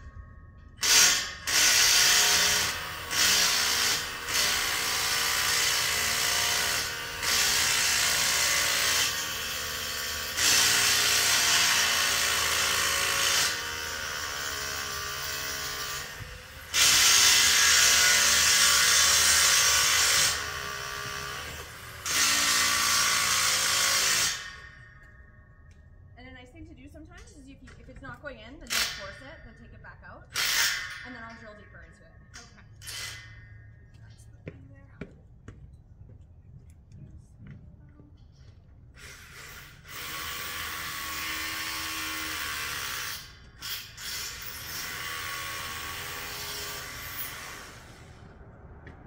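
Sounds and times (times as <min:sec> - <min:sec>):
hammer drill boring into concrete: 0:00.8 - 0:25.2, 0:28.7 - 0:29.4, 0:30.3 - 0:31.4, 0:32.4 - 0:33.5, 0:39.0 - 0:48.0.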